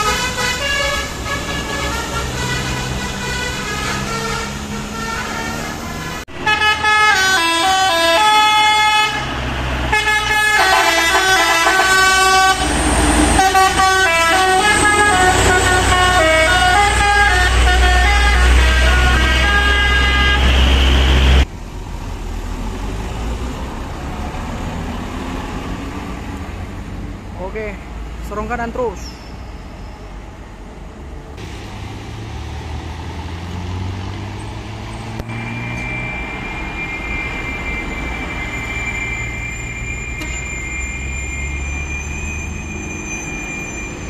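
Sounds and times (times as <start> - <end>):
musical air horn playing tune: 0.0 - 9.3, 9.9 - 12.8, 13.4 - 20.8
bus engine running loudly: 0.0 - 27.4, 30.1 - 44.0
road traffic: 0.0 - 44.0.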